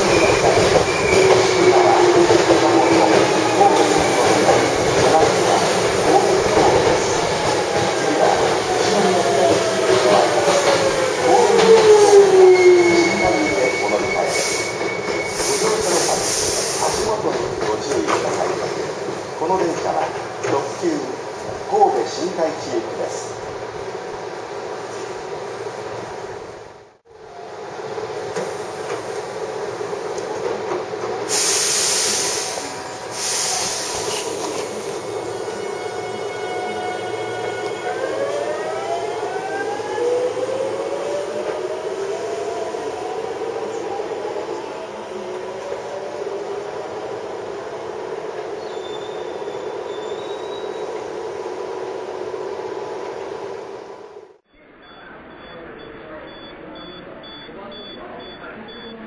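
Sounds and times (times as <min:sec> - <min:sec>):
electric train rumbling: 0:00.0 - 0:58.9
compressed air hiss: 0:15.4 - 0:17.1, 0:31.3 - 0:35.0.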